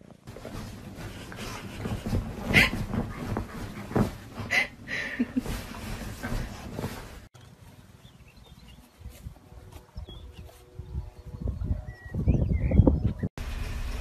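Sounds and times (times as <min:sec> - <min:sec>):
fabric rustling: 0:00.0 - 0:07.7.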